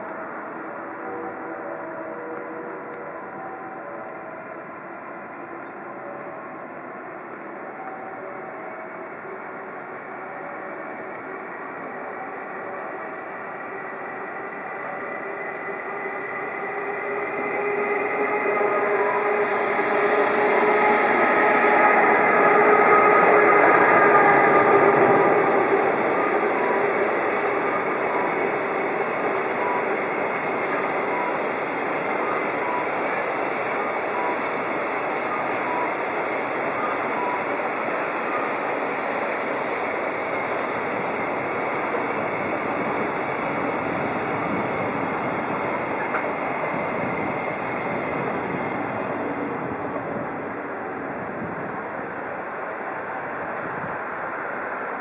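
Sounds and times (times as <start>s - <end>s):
electric locomotive humming: 0.0s - 55.0s.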